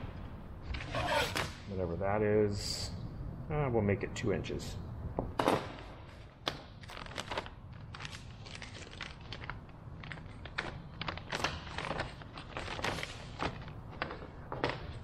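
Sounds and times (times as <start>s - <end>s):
plastic bags crinkling: 6.8s - 14.1s
small crackles: 6.8s - 14.8s.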